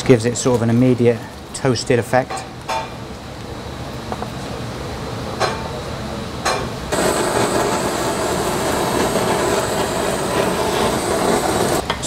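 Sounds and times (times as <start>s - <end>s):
blowtorch flame hissing: 6.9s - 12.0s.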